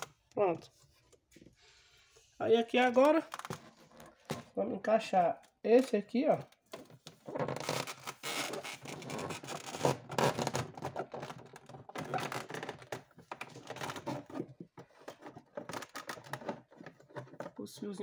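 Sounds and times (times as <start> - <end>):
plastic panel scraping and clicking: 5.8 - 17.9.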